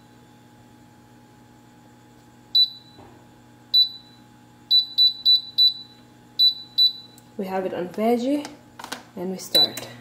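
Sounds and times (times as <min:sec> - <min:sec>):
control panel beeps: 0:02.6 - 0:03.0, 0:03.7 - 0:07.2, 0:09.6 - 0:09.9.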